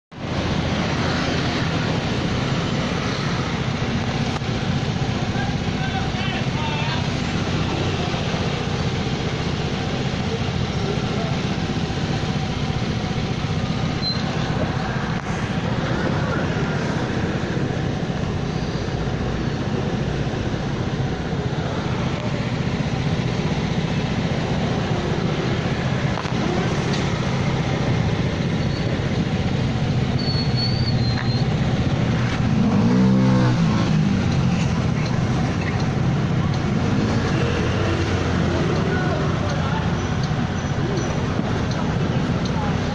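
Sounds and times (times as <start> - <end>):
street traffic noise: 0.0 - 42.9.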